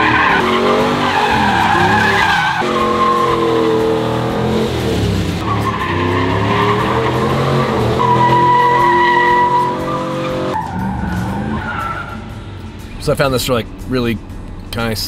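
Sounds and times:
tyres squealing: 0.0 - 4.7, 5.4 - 12.2
pickup truck engines revving: 0.0 - 12.8.

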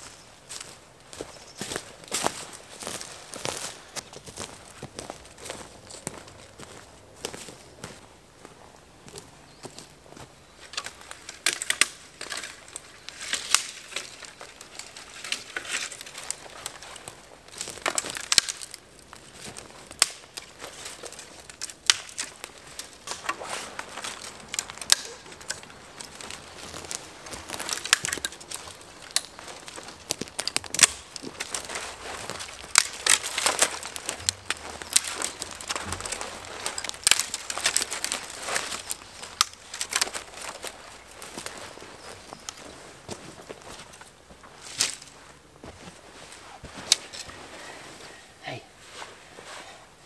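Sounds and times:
bundle of twigs rustling: 0.0 - 50.0
dry twigs snapping: 10.6 - 45.2, 46.7 - 47.4.

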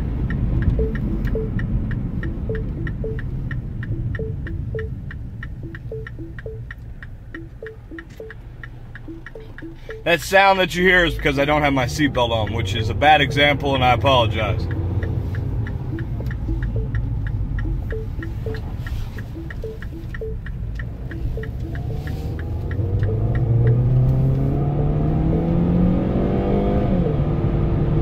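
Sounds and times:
car engine accelerating: 0.0 - 28.0
seatbelt warning chime pinging: 0.3 - 24.1.

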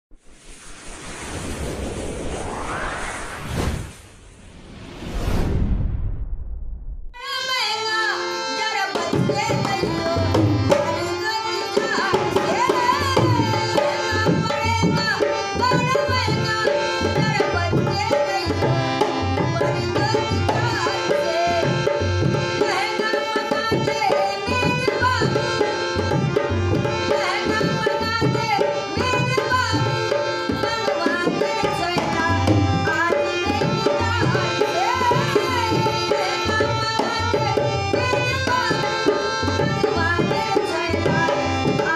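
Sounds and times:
harmonium chords: 7.2 - 41.9
woman singing: 7.2 - 41.9
dholak drum rhythm: 7.3 - 41.9.

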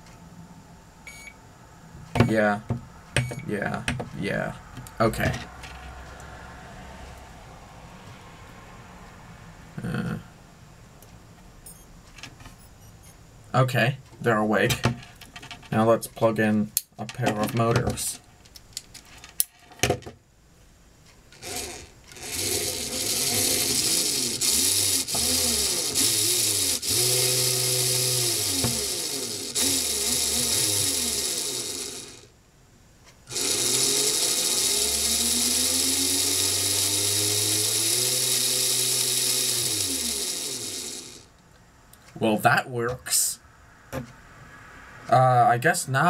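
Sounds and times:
electric motors whining: 21.4 - 32.3, 33.3 - 41.4.

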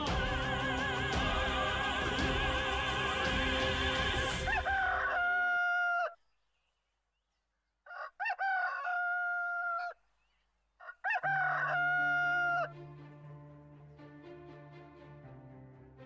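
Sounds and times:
rooster crowing: 4.4 - 6.2, 7.8 - 10.0, 10.8 - 12.8.

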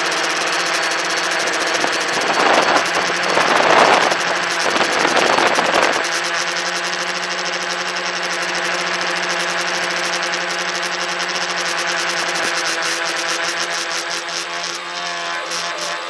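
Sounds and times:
drone motors humming: 0.0 - 16.0
rushing noise: 1.6 - 6.0.

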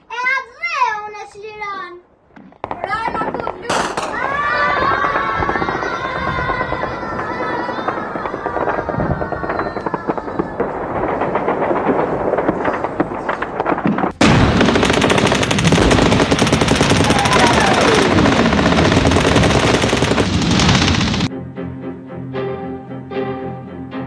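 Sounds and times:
machine-gun fire: 2.6 - 21.3.

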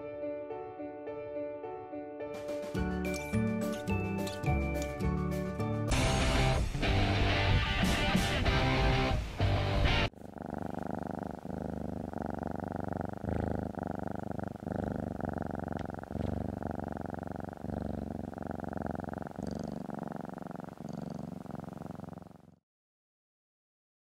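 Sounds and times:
cat purring: 3.1 - 22.6.

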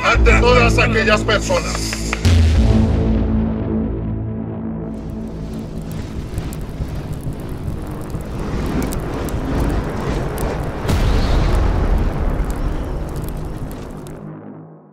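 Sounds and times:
fiery explosion with crackles: 4.8 - 14.4.

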